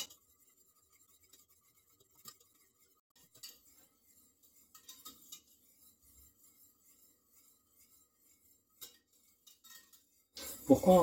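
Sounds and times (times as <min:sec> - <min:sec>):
whisk clinking against saucepan: 0:00.0 - 0:11.0.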